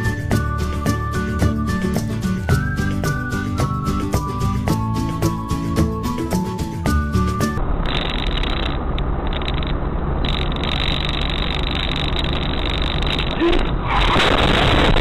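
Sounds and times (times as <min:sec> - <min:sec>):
background music: 0:00.0 - 0:07.6
car engine and road noise: 0:04.6 - 0:15.0.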